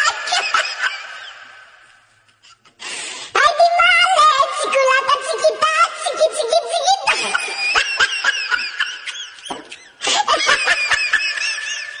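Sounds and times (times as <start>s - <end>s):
high-pitched laughter: 0.0s - 1.6s, 6.8s - 12.0s.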